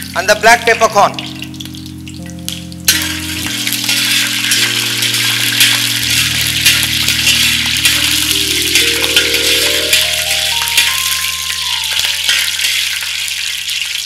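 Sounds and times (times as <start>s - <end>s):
soft background music: 0.0s - 13.1s
spices sizzling in hot oil: 0.0s - 14.0s
metal spatula stirring: 2.9s - 10.1s.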